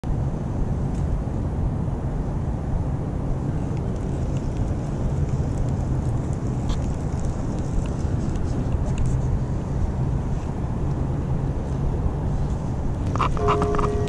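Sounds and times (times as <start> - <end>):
wind rumbling on microphone: 0.0 - 14.0
faint light ticks: 3.7 - 9.2.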